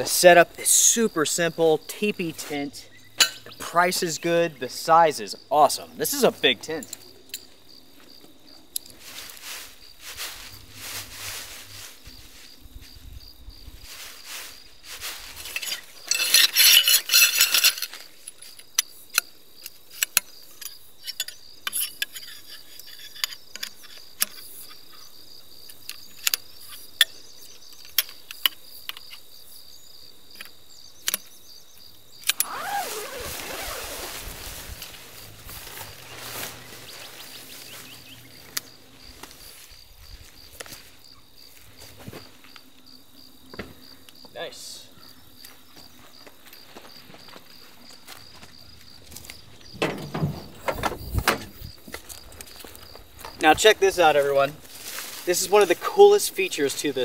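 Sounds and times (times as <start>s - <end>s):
insect trill: 0.0s - 57.0s
tent fabric rustling: 8.9s - 18.1s, 32.3s - 42.4s, 54.2s - 55.8s
tent pole clicking: 15.4s - 27.1s, 32.2s - 37.8s.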